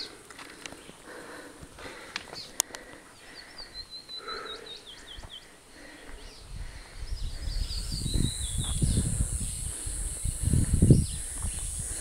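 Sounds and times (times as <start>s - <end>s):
birds chirping: 0.0s - 12.0s
high insect buzz: 7.5s - 12.0s.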